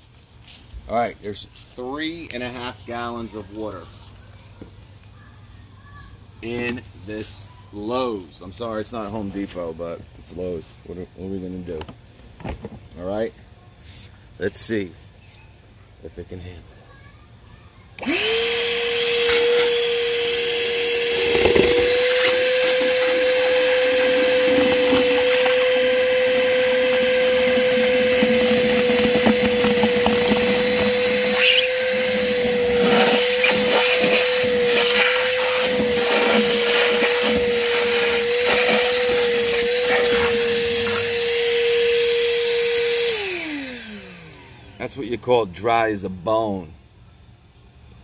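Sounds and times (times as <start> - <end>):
shop vacuum whining: 18.0 - 44.9
water slurping into hose: 21.2 - 40.4.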